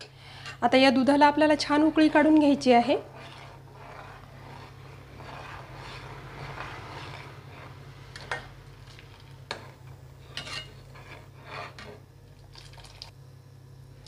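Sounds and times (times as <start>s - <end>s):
spoon stirring milk in pan: 2.2s - 13.0s.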